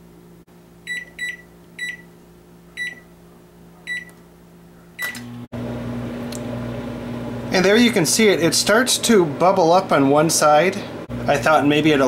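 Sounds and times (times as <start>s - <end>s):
microwave humming: 0.0s - 12.0s
microwave keypad beeping: 0.9s - 2.1s, 2.8s - 3.1s, 3.9s - 4.2s.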